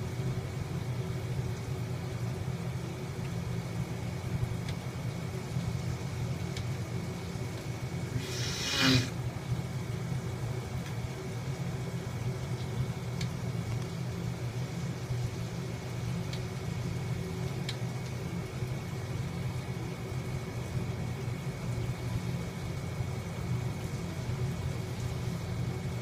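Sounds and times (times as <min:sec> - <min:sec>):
faint ticks: 0:17.6 - 0:18.2.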